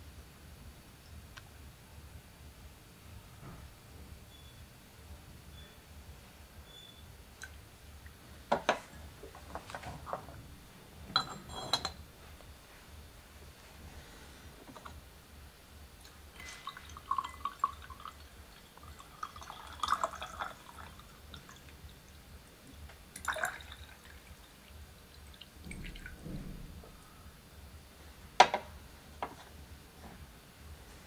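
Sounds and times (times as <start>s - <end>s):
teapot knocking on wooden tray: 8.5s - 8.9s, 28.4s - 29.4s
light clinks and drips: 11.1s - 12.0s, 16.0s - 21.8s
water pouring into glass pitcher: 16.0s - 26.3s.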